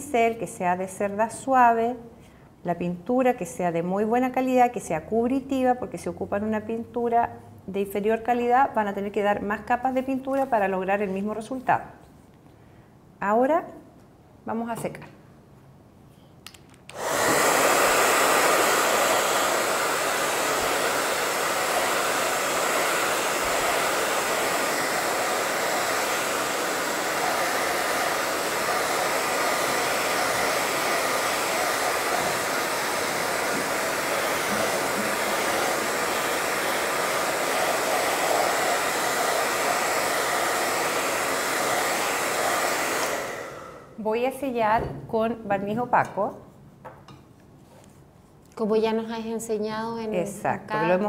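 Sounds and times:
hair dryer blowing: 16.9s - 44.0s.

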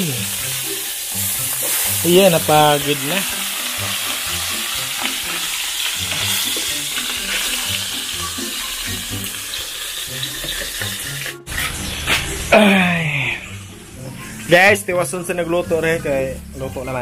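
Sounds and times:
fish sizzling in hot oil: 0.0s - 12.7s.

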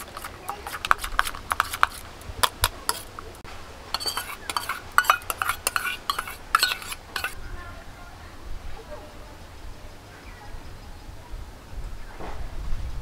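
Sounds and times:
spoon clinking in steel bowl: 0.0s - 3.3s, 4.0s - 7.4s.

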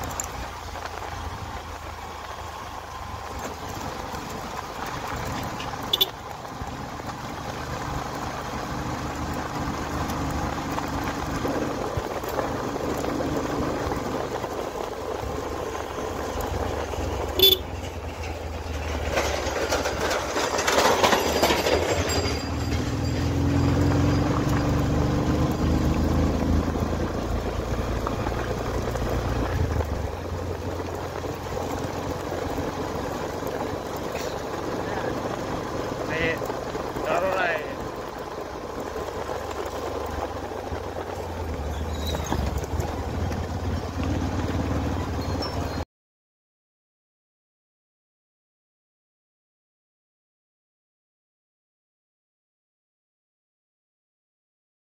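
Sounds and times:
wind and road noise: 0.0s - 45.9s
small motorcycle engine running: 3.8s - 45.8s.

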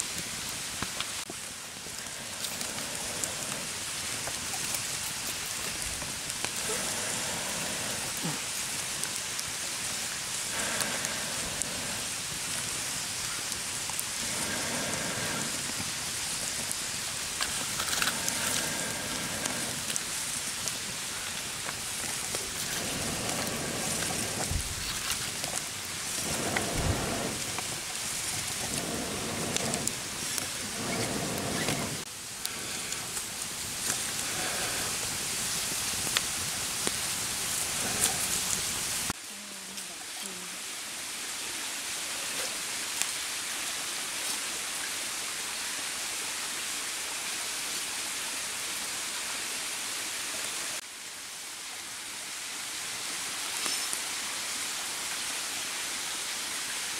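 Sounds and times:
wood fire crackling: 0.0s - 41.4s.

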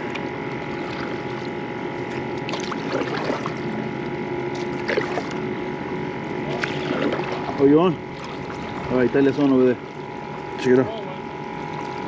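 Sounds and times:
paddle pulling through water: 0.0s - 10.8s
faint steady hum: 0.0s - 12.0s
water lapping and trickling: 0.0s - 12.0s
small splashes: 0.7s - 3.7s, 4.5s - 5.4s, 6.5s - 8.9s.

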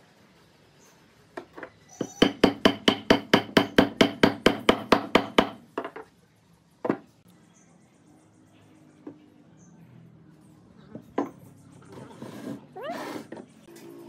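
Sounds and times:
small hammer striking wood: 2.0s - 6.0s.

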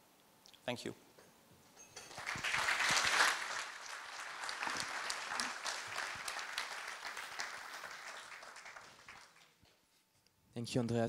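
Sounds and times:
audience applauding: 2.0s - 9.6s.

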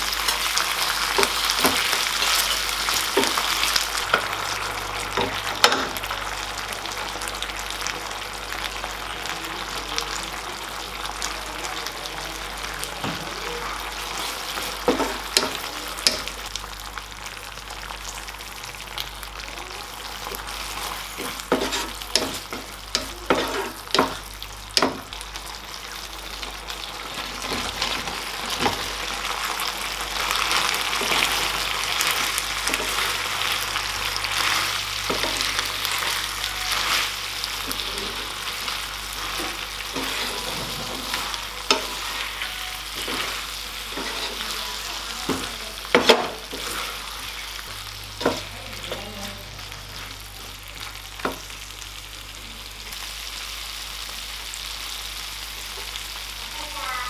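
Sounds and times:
sauce sizzling in a frying pan: 0.0s - 57.0s
wooden spatula stirring: 20.6s - 24.2s.

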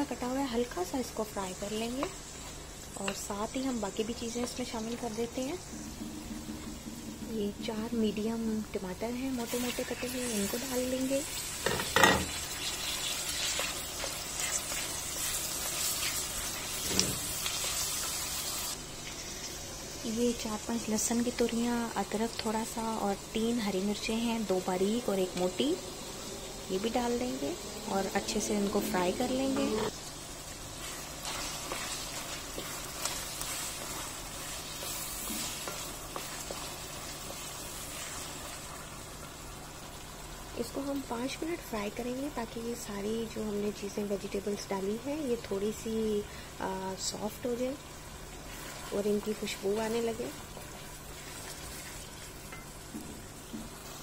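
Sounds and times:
onions sizzling in hot oil: 0.0s - 54.0s
wooden spoon scraping pan: 30.8s - 36.7s
wooden spatula stirring: 30.8s - 38.8s, 50.5s - 52.3s.

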